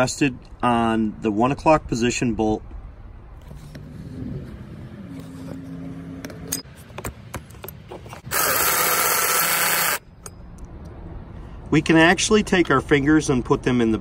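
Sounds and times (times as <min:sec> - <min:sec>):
power tool whirring: 0:08.2 - 0:10.1.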